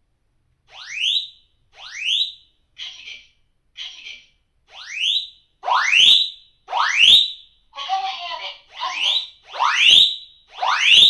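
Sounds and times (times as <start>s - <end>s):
fire alarm rising sweep tone: 0.7s - 2.5s, 4.7s - 7.6s, 8.6s - 11.0s.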